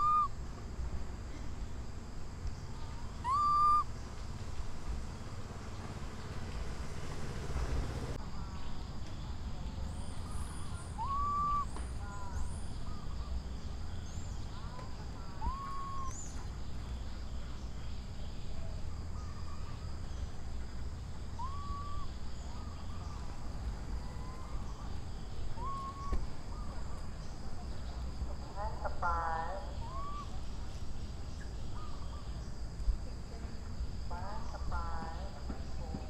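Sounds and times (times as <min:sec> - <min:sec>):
baby monkey coo calls: 0:00.0 - 0:00.3, 0:03.1 - 0:03.9, 0:10.3 - 0:13.3, 0:15.3 - 0:16.4, 0:21.4 - 0:23.2, 0:24.1 - 0:26.7, 0:29.0 - 0:30.4.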